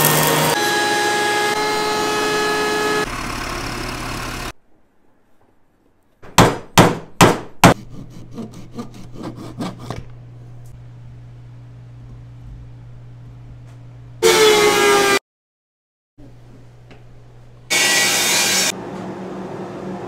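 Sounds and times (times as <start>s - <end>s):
thickness planer running: 0.0s - 4.5s, 17.7s - 20.0s.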